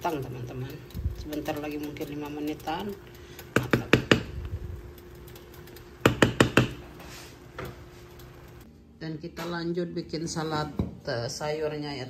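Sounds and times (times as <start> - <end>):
spatula knocking against a pot: 6.0 - 6.8.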